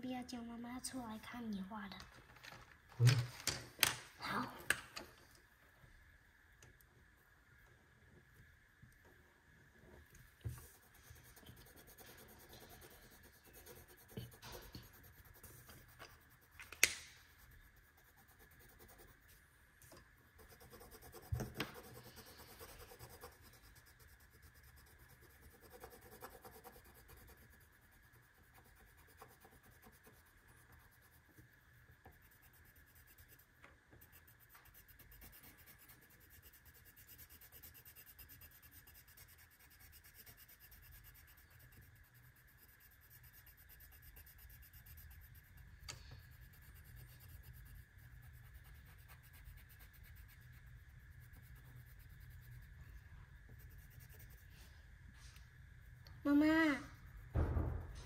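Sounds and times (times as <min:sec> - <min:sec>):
markers scratching on paper: 0:10.5 - 0:19.4, 0:20.4 - 0:31.3, 0:32.1 - 0:52.8, 0:53.5 - 0:54.6.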